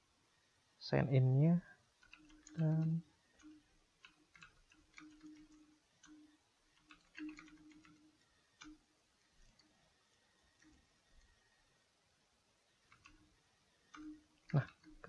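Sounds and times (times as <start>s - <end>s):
typing on computer keyboard: 2.0s - 8.8s, 9.4s - 9.7s, 10.6s - 10.8s, 12.8s - 13.3s, 13.9s - 15.0s.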